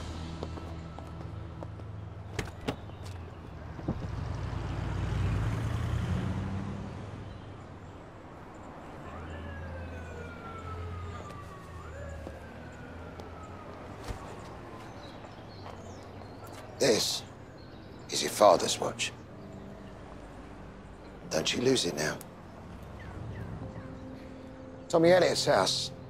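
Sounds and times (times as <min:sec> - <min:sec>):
city street traffic rumble: 0:00.0 - 0:26.0
siren wailing: 0:08.7 - 0:16.2.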